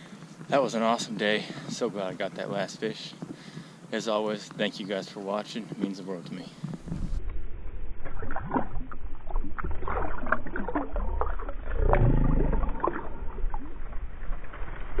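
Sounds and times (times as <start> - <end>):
water splashing and sloshing: 6.6 - 15.0
low rumble: 6.7 - 15.0.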